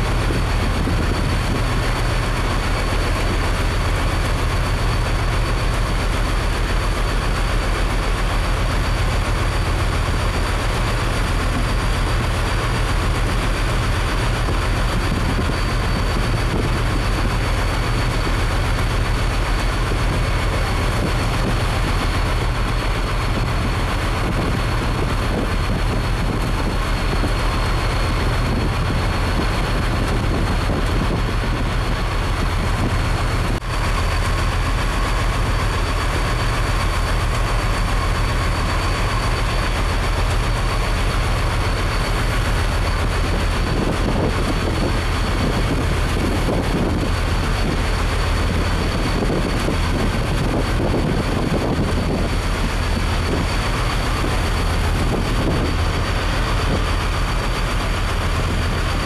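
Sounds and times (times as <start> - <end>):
boat engine droning: 0.0 - 59.0
rush of wind and water: 0.0 - 59.0.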